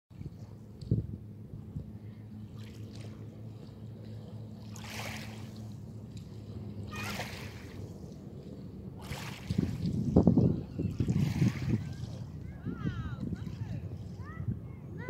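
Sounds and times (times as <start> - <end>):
ship engine drone: 0.3 - 9.8.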